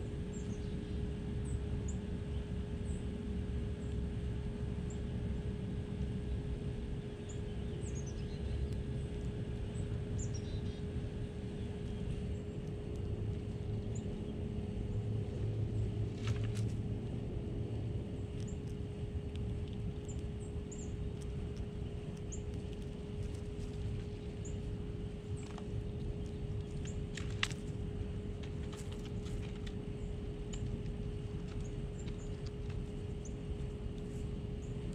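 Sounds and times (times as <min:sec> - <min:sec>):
faint steady hum: 0:00.0 - 0:34.9
low rumble: 0:09.2 - 0:34.9.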